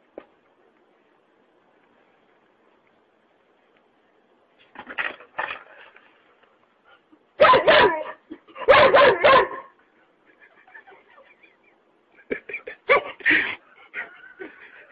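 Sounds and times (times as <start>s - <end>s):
dog barking: 7.4s - 9.8s, 12.9s - 13.2s.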